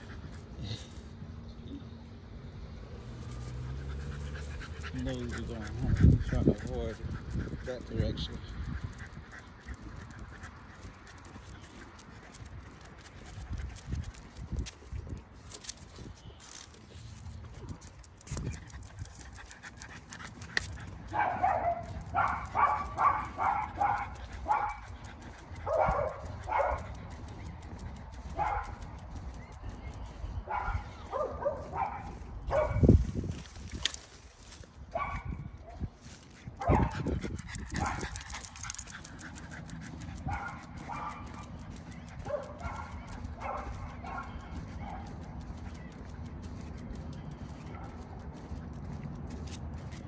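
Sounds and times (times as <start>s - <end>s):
dog barking: 21.1s - 24.8s, 25.7s - 26.9s, 28.3s - 28.8s, 30.5s - 32.9s, 34.9s - 35.8s, 36.6s - 37.0s, 37.8s - 38.4s, 40.3s - 41.6s, 42.2s - 45.1s.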